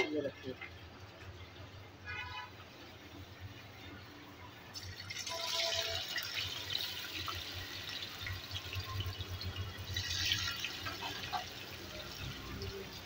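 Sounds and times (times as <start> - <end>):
oil sizzling and crackling: 2.5 - 13.0.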